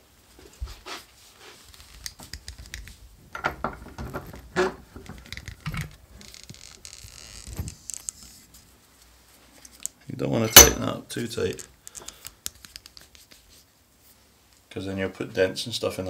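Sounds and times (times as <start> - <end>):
metal vise clicks and knocks: 3.4 - 6.0.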